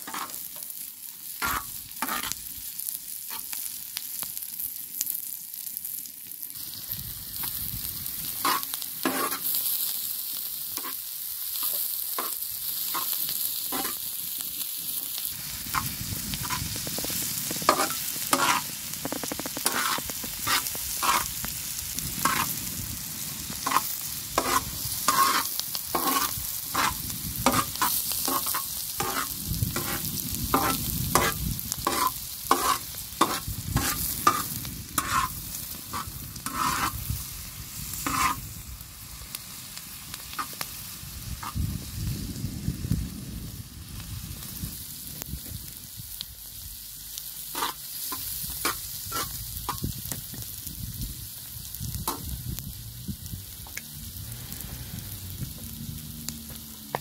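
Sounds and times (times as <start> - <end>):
vegetables sizzling on griddle: 0.0 - 57.0
metal skimmer scraping pan: 31.9 - 35.3.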